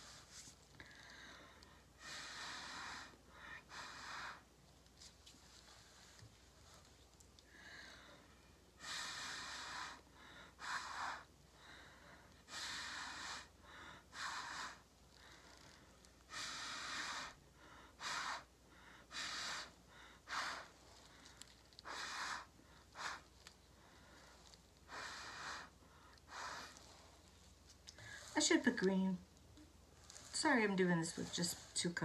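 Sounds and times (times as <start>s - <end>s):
breathy puffs through straw: 18.0s - 28.8s.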